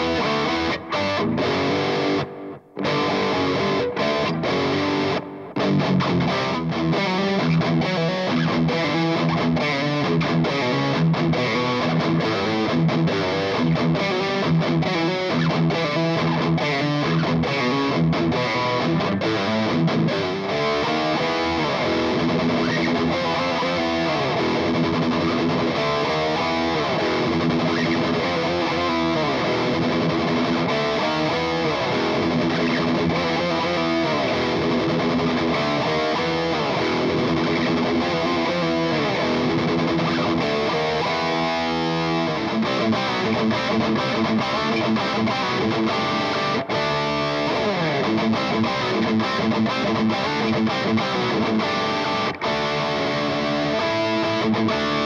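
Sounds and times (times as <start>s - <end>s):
distorted electric guitar riffs: 0.0s - 55.0s.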